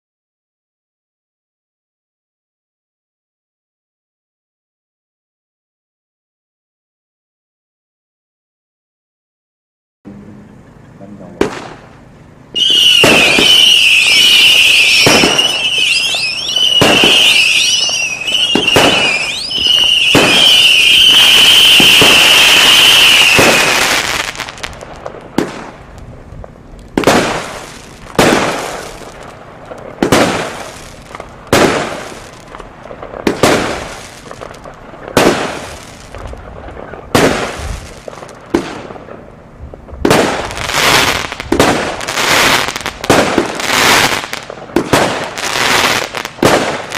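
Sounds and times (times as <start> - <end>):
firework shots banging: 11.2 - 46.9
high firework whistle: 12.5 - 24.8, 40.1 - 46.9.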